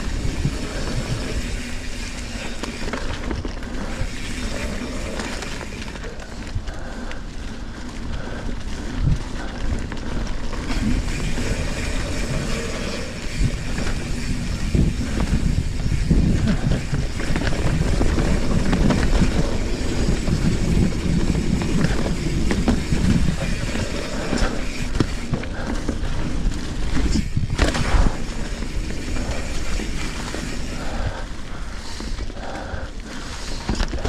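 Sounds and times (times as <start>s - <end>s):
bike rattling over bumps: 0.0s - 34.0s
bike tyres crunching on dirt: 0.0s - 34.0s
wind and ground rumble: 0.0s - 34.0s.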